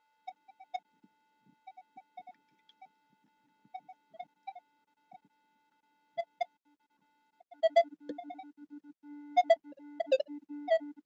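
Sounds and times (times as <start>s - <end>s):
faint steady tone: 0.0s - 11.0s.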